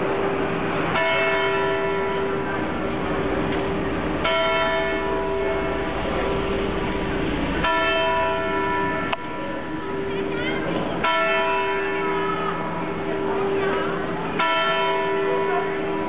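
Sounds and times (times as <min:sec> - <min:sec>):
steady hum: 0:00.0 - 0:11.1
clock tower bell ringing: 0:00.9 - 0:02.7, 0:04.2 - 0:16.0.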